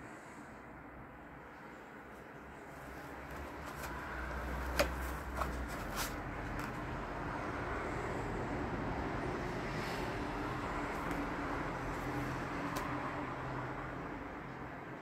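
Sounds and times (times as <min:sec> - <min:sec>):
plastic case clicks: 0:04.6 - 0:05.6.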